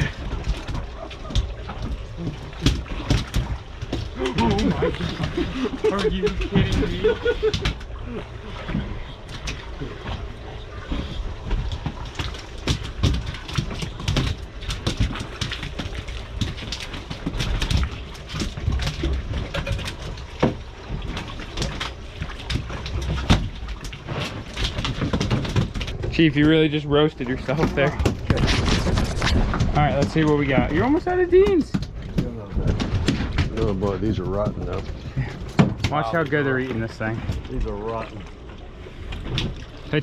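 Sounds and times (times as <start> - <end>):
steady low rumble: 25.6 - 40.0
wind buffeting microphone: 26.0 - 35.6.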